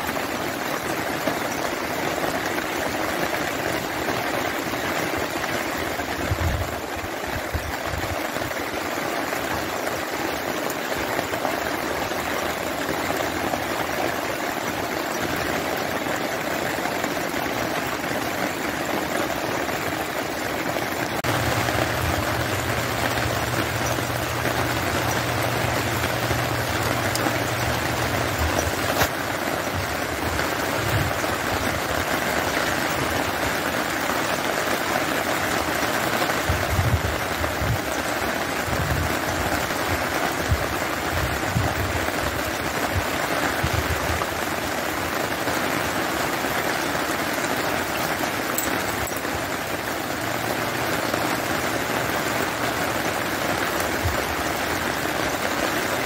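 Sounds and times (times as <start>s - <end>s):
steady rain hiss: 0.0s - 56.0s
low hum: 21.2s - 29.0s.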